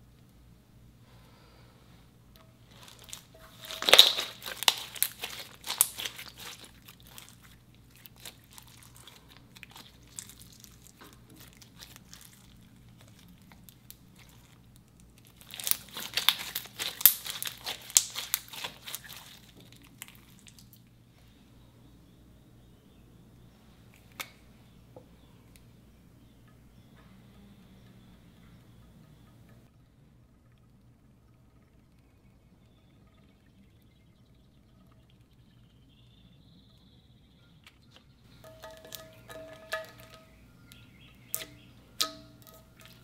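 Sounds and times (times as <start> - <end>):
slime crackling and popping: 2.6 - 20.8, 38.4 - 43.0.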